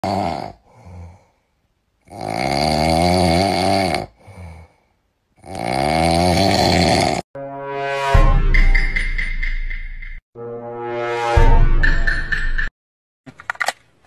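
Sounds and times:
loud buzzing snoring: 0.0s - 1.2s, 2.0s - 4.6s, 5.4s - 7.3s.

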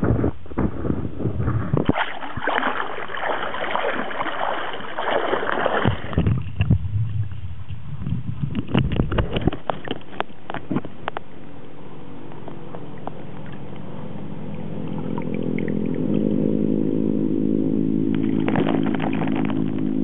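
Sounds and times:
muffled underwater rumble: 0.0s - 20.0s
water splashing and sloshing: 1.4s - 20.0s
sharp underwater clicks: 1.8s - 13.9s, 14.5s - 16.4s, 18.1s - 20.0s.

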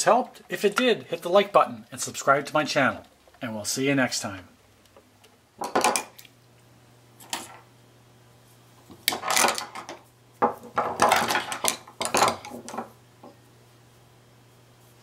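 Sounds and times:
screwdrivers clattering on wooden table: 5.6s - 6.1s, 9.1s - 10.0s, 10.6s - 12.9s.

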